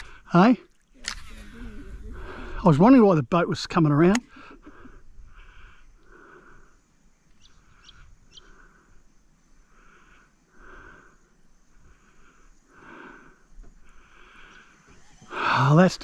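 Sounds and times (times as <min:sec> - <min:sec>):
soft outdoor noise: 0:00.0 - 0:16.0
rising bird chirps: 0:07.2 - 0:08.7.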